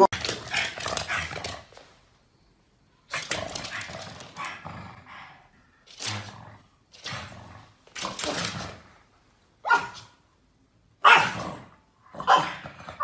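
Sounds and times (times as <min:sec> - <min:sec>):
dog barking: 0:09.6 - 0:10.2, 0:11.0 - 0:11.6, 0:12.2 - 0:12.7.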